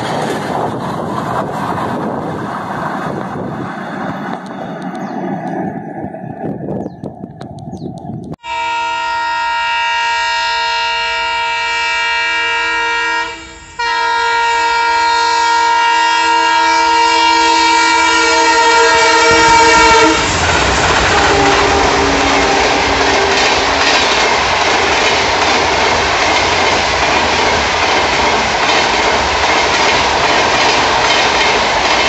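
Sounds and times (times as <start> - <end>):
train wheels on rail: 0.0 - 8.4, 13.2 - 32.0
locomotive air horn chord: 8.4 - 20.4, 21.0 - 23.5.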